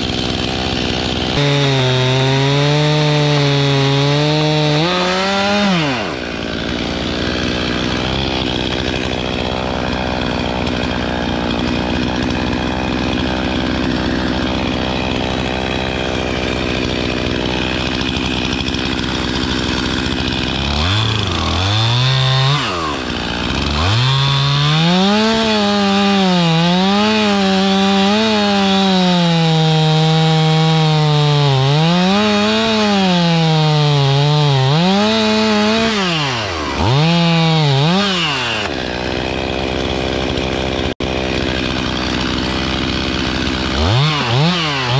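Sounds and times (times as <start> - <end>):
chainsaw cutting and revving: 0.0 - 44.9.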